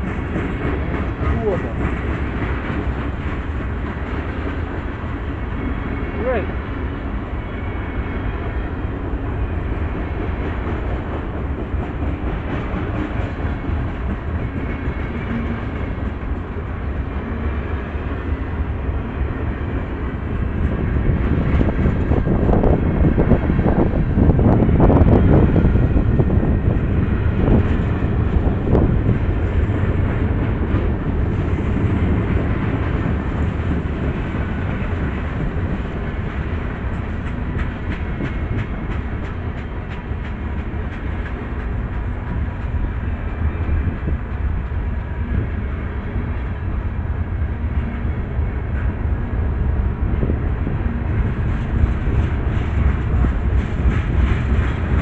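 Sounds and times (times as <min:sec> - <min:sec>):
freight train wheels rumbling: 0:00.0 - 0:55.0
wheels clicking over rail joints: 0:32.4 - 0:42.9.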